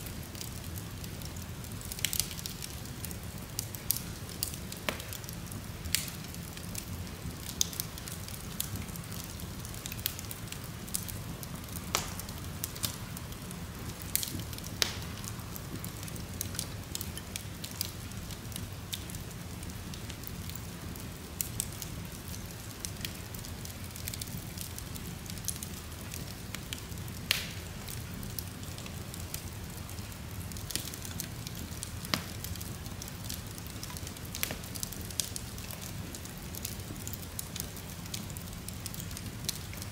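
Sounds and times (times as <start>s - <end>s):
fire crackling and popping: 0.0s - 39.9s
low rumble of flame: 0.0s - 39.9s.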